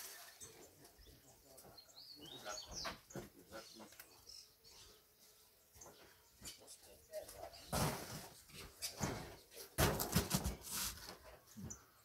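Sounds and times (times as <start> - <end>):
faint bird chirps: 0.1 - 7.8.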